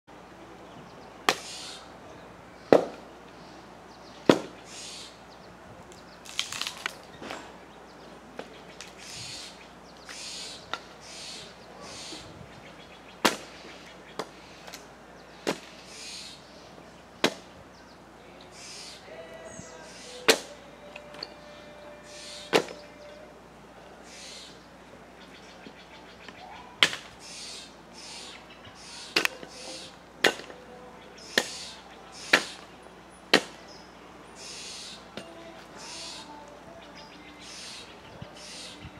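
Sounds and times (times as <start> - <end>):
jays calling: 1.0 - 2.7, 3.4 - 17.2, 17.8 - 38.9
axe chopping firewood: 2.7 - 3.0, 4.3 - 4.6, 13.2 - 13.5, 15.4 - 15.7, 17.2 - 17.5, 20.3 - 20.6, 22.5 - 22.8, 26.8 - 27.1, 30.2 - 30.6, 31.3 - 31.7, 32.3 - 32.6, 33.3 - 33.6.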